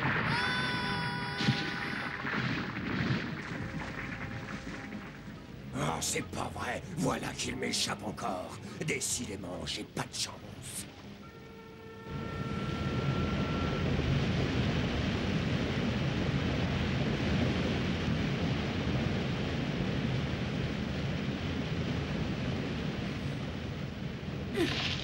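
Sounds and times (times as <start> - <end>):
rushing waterfall: 0.0 - 10.4.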